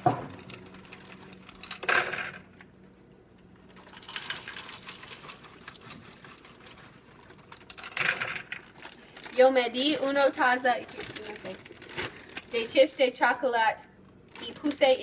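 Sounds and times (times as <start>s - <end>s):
plastic bag crinkling: 3.6s - 12.9s, 14.3s - 15.0s
chocolate chips pattering into cup: 3.8s - 12.8s.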